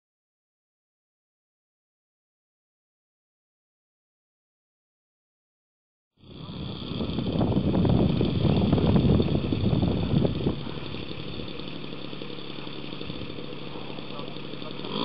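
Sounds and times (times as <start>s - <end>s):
model airplane engine running: 6.2s - 15.0s.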